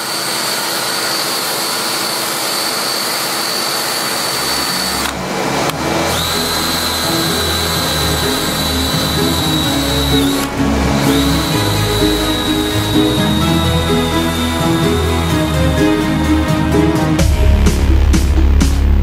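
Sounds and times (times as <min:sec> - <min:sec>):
wire brush whining on wood: 0:00.0 - 0:15.6
background music: 0:04.5 - 0:19.0.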